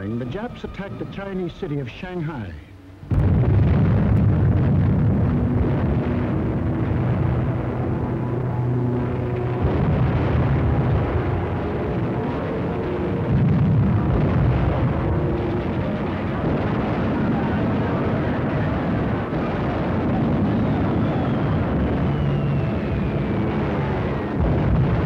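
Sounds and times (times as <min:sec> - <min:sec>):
rumble of explosions: 0:00.0 - 0:25.0
loud blast: 0:03.0 - 0:25.0
falling whistle: 0:20.3 - 0:24.4.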